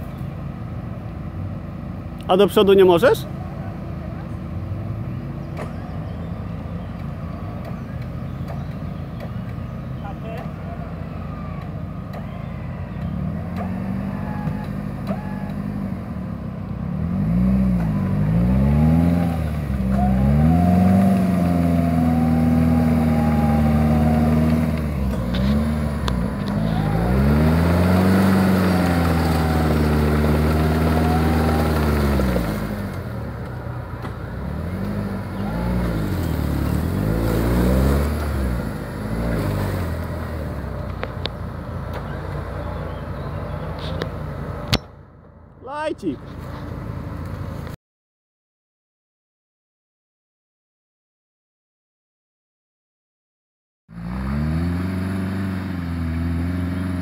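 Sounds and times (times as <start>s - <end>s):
off-road engine revving hard: 7.6s - 44.8s, 53.9s - 57.0s.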